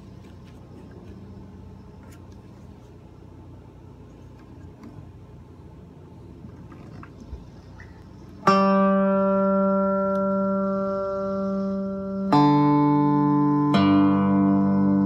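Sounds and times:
electric guitar chords strummed: 0:08.3 - 0:15.0.

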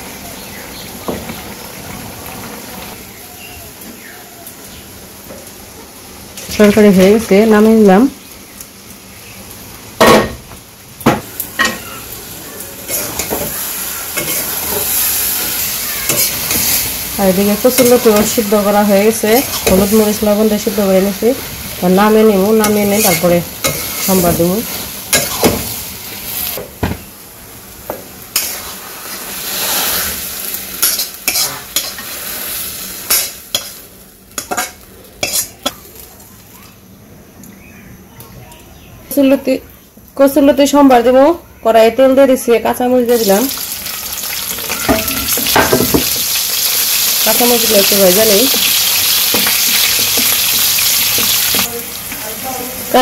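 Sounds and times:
food sizzling in a pan: 0:00.0 - 0:37.0, 0:42.5 - 0:53.0
metal spatula scraping a pan: 0:22.6 - 0:24.4, 0:28.4 - 0:30.2, 0:30.8 - 0:32.3.

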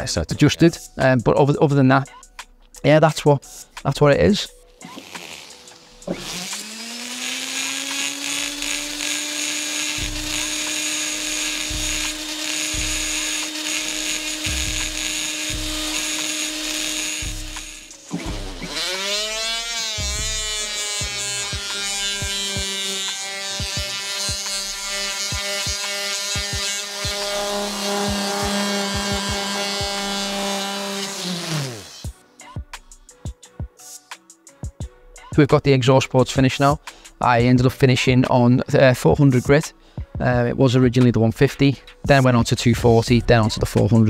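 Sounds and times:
die grinder whining: 0:04.8 - 0:32.2.

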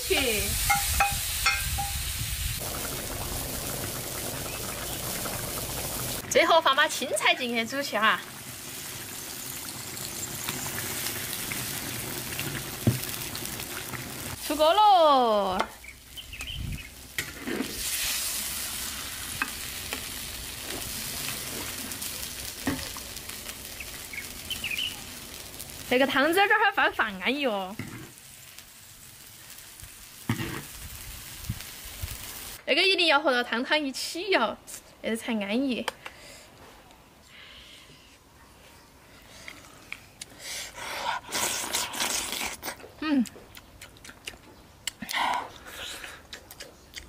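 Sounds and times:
hot wok hissing: 0:00.0 - 0:14.8, 0:15.8 - 0:32.6
broth bubbling at the boil: 0:00.2 - 0:14.6.

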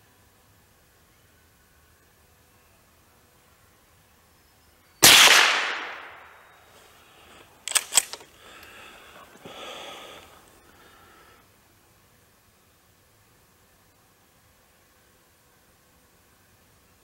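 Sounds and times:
rifle shot with echo: 0:05.0 - 0:06.4
metallic clicks of pump slide: 0:07.6 - 0:08.3.

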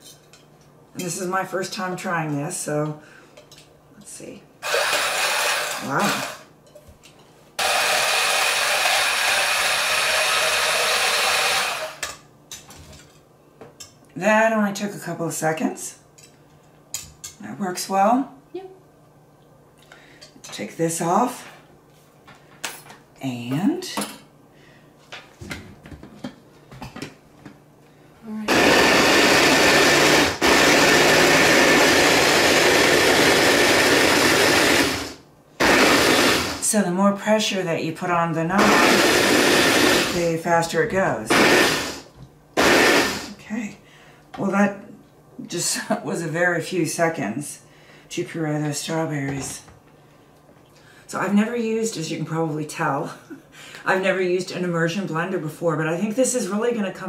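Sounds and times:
immersion blender whisking: 0:04.6 - 0:06.4, 0:07.6 - 0:12.0, 0:28.5 - 0:36.6, 0:38.6 - 0:40.2, 0:41.3 - 0:43.3.

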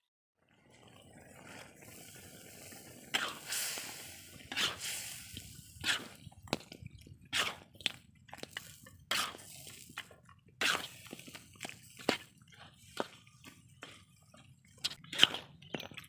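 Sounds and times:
wet stew squelching: 0:00.5 - 0:16.0
metal spatula scraping a wok: 0:02.2 - 0:06.2, 0:07.3 - 0:07.6, 0:09.1 - 0:09.8, 0:10.6 - 0:11.1.

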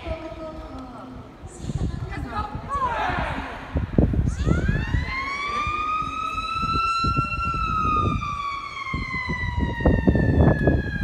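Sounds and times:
low rumbling noise: 0:00.0 - 0:11.0
siren wailing: 0:04.2 - 0:11.0.

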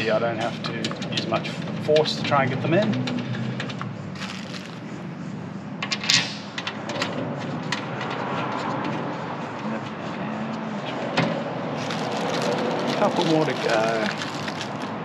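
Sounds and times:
workshop hum: 0:04.1 - 0:05.0.

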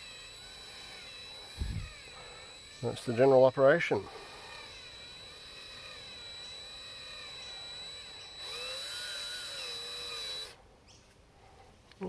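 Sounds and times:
cordless drill motor whine: 0:00.0 - 0:10.6.

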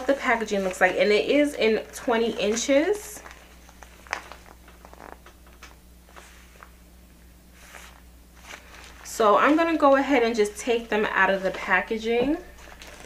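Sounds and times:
plastic packaging crinkling: 0:00.0 - 0:06.7, 0:07.6 - 0:10.0, 0:10.8 - 0:13.0
low steady hum: 0:00.0 - 0:13.0.

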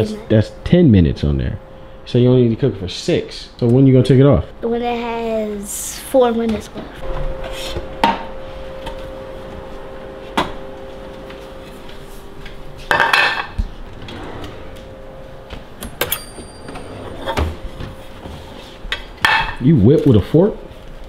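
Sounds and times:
faint steady hum: 0:00.0 - 0:21.0
frying pans knocking and clattering: 0:12.9 - 0:13.6, 0:18.9 - 0:19.6.

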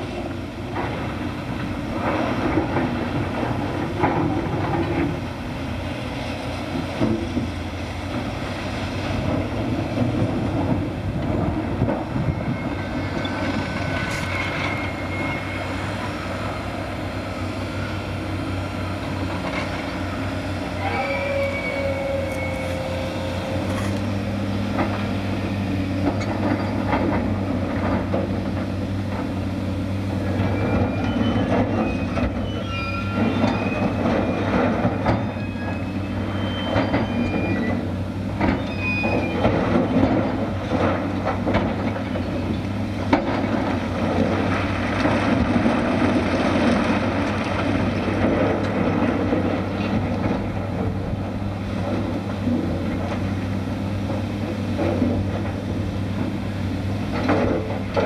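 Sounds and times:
heavy diesel machinery running: 0:00.0 - 0:58.0
metallic squeals and clanks: 0:12.2 - 0:16.6, 0:20.7 - 0:24.3, 0:30.3 - 0:40.1.

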